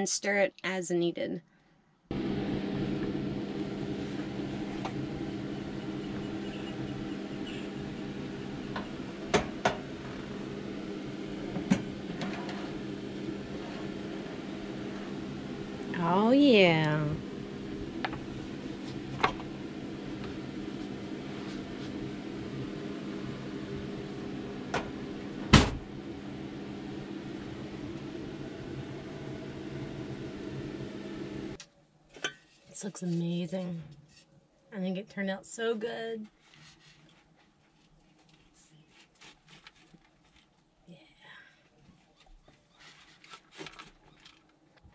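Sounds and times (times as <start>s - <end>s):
steady low hum: 2.1s - 31.6s.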